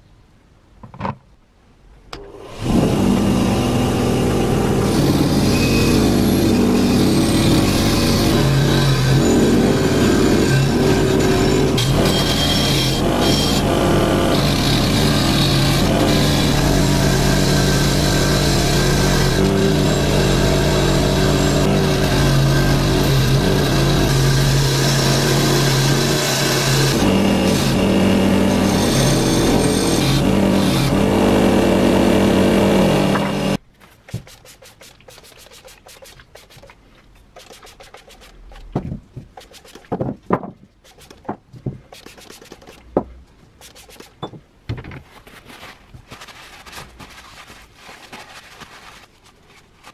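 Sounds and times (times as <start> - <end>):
bench grinder wire wheel: 2.5 - 33.6.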